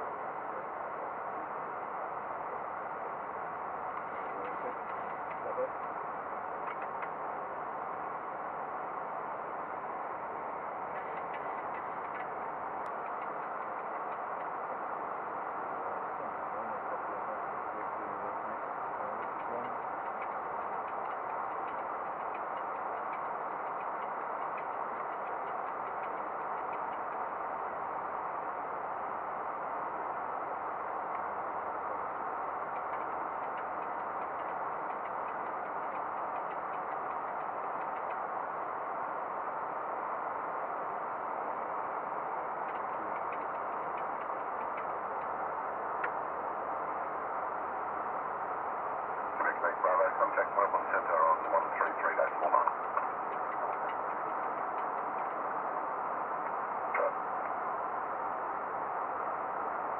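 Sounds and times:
faint ticks: 0:06.6 - 0:07.2, 0:10.9 - 0:14.6, 0:19.1 - 0:27.8, 0:32.6 - 0:38.3, 0:42.6 - 0:45.4.

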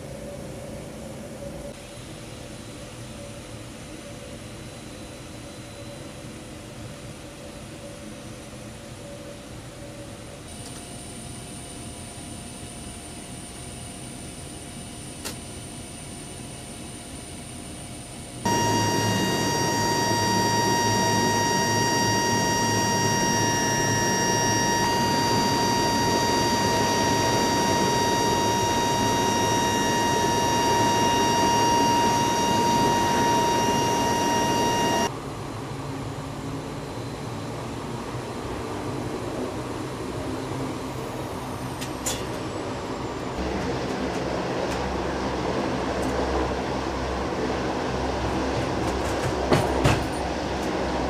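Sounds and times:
turboprop aircraft engine noise: 0:00.0 - 0:51.0
piercing high engine whine: 0:09.8 - 0:35.2.

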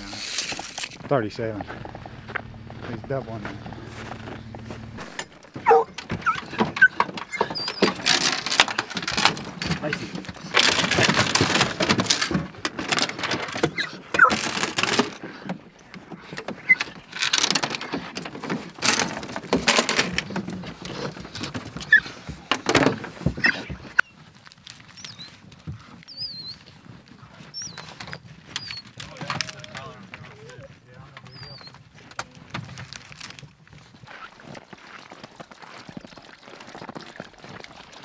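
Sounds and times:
faint high squeaks: 0:16.5 - 0:17.1, 0:31.2 - 0:31.8.

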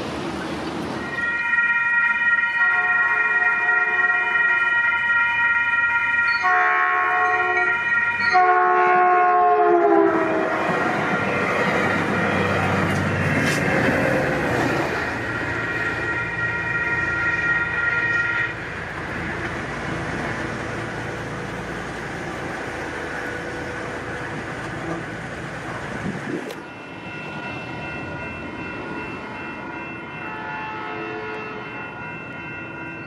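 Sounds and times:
diesel train rumbling: 0:00.0 - 0:33.0
crossing warning tones: 0:00.4 - 0:33.0.

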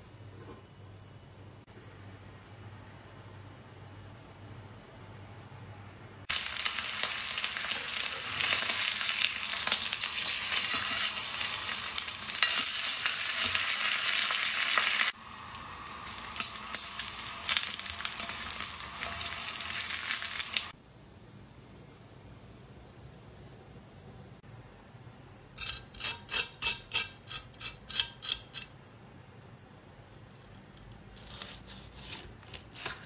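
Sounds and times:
steak sizzling in a pan: 0:06.3 - 0:20.7.

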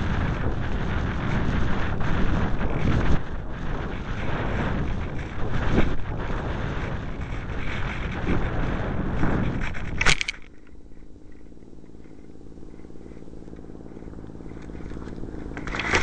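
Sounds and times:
glider scraping dry grass: 0:00.0 - 0:16.0
low hum: 0:00.0 - 0:16.0
wind rushing over microphone: 0:00.0 - 0:16.0.

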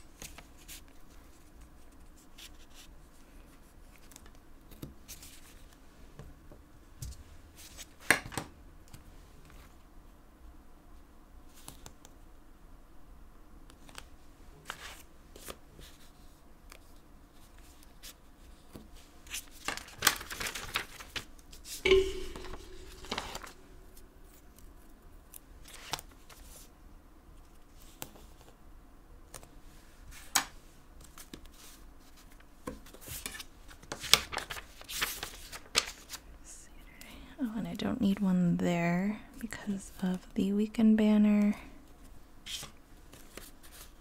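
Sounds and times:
page turning: 0:19.3 - 0:21.3, 0:33.2 - 0:36.2.

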